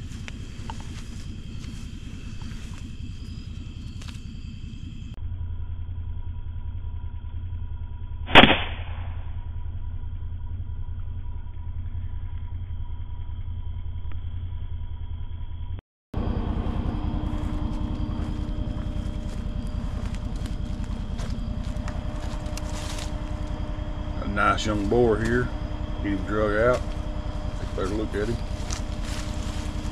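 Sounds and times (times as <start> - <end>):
wind and movement through brush: 0.0 - 5.2, 16.2 - 29.9
low hum with faint tones: 0.0 - 29.9
rifle shot: 8.3 - 9.4.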